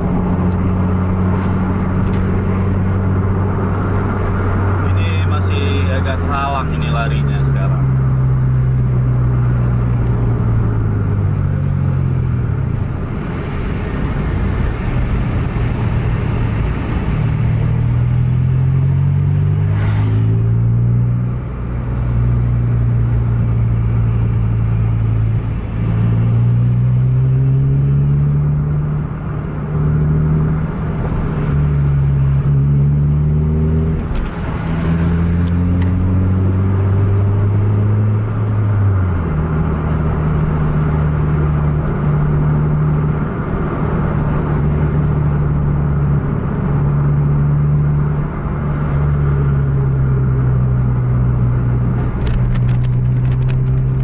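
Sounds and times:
car engine revving from inside cabin: 24.8 - 29.1, 31.4 - 38.7.

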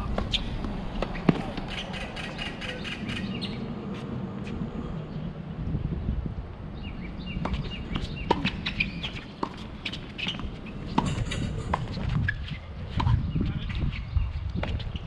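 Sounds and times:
birds chirping: 0.0 - 3.8, 6.7 - 15.0
tennis ball struck and bouncing: 0.1 - 1.8.

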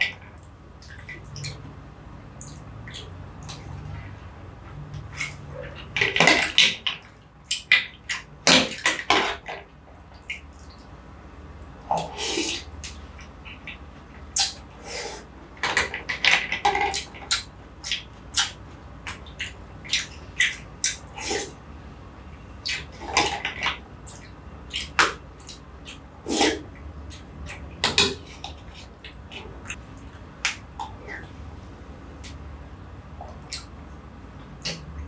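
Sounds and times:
wet slurping: 11.9 - 13.0, 20.8 - 21.6, 26.3 - 26.7.

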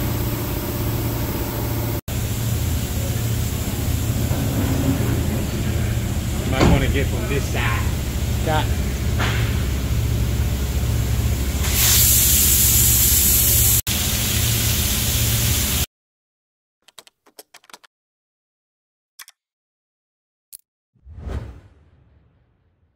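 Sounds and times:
machine humming and hissing: 0.0 - 15.9.

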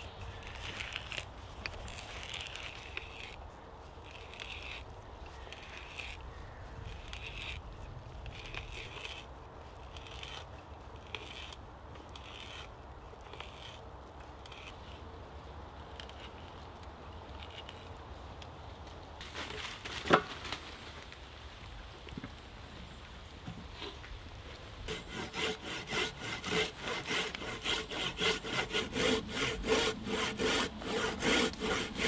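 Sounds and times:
auger bit rasping through wood: 0.0 - 3.4, 4.0 - 4.8, 5.4 - 6.2, 6.8 - 7.6, 8.2 - 13.8, 14.4 - 15.0, 24.9 - 32.0.

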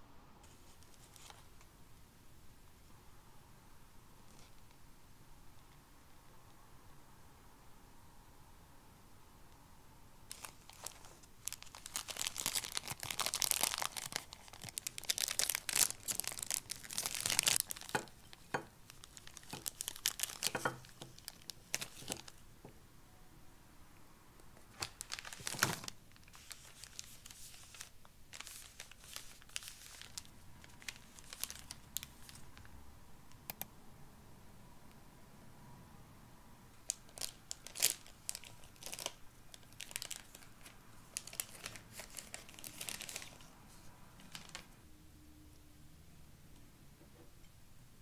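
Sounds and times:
packaging crinkling and tearing: 10.3 - 22.4, 24.6 - 32.7, 36.8 - 43.6, 44.2 - 44.7.

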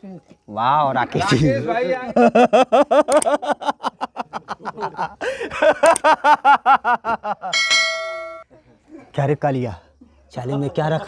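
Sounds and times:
person laughing hard: 2.2 - 7.6.

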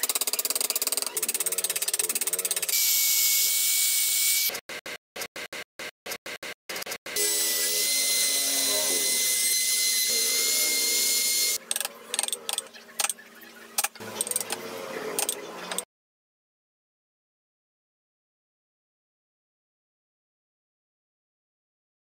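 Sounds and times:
rotary tool whirring: 0.0 - 13.2.

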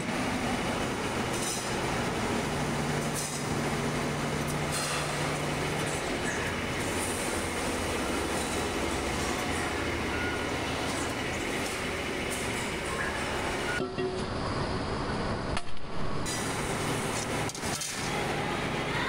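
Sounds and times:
metalworking machinery noise: 0.0 - 19.0.

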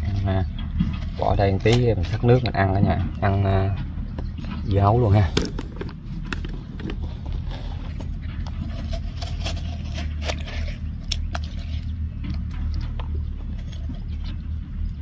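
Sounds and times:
low rumble: 0.0 - 15.0
metal spoon scraping watermelon: 6.4 - 14.6.

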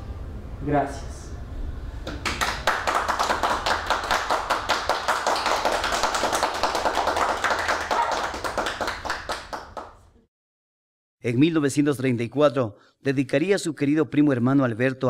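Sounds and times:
audience applauding: 2.1 - 10.0.

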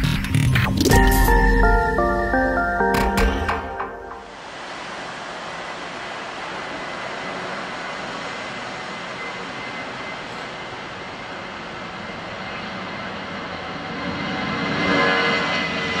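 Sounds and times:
faint high whine: 0.9 - 15.9
jet engine roar: 4.3 - 16.0.

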